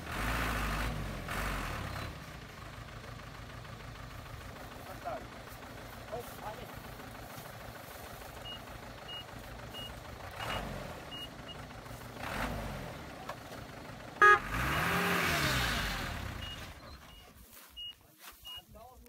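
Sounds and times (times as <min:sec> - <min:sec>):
truck engine revving: 0:00.0 - 0:17.4
reversing beeper chirping: 0:08.4 - 0:11.6, 0:16.3 - 0:18.7
loud horn toot: 0:14.2 - 0:15.1.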